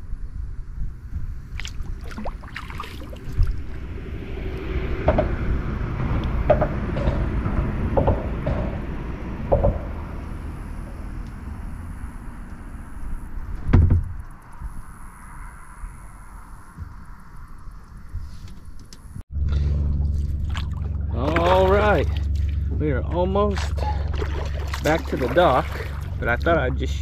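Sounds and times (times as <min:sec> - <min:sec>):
low rumble of water and air: 0:00.0 - 0:27.0
paddle knocks and splashes: 0:01.6 - 0:03.8, 0:23.5 - 0:26.6.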